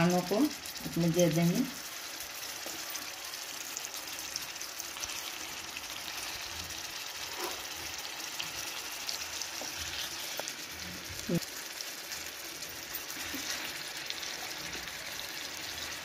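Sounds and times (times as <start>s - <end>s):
chicken sizzling in oil: 0.0s - 16.0s.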